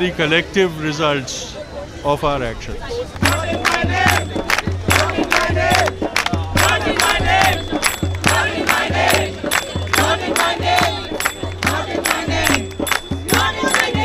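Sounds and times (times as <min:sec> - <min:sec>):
crowd chanting: 0:03.2 - 0:14.0
steady drum beat: 0:03.2 - 0:14.0.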